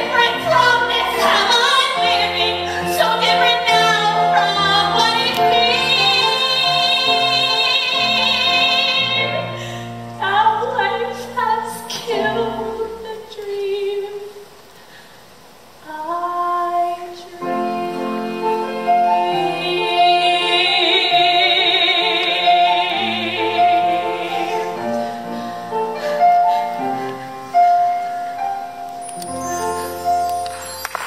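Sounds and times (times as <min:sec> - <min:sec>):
woman singing with vibrato: 0:00.0 - 0:14.5, 0:15.8 - 0:25.3
instrumental accompaniment: 0:17.4 - 0:31.0.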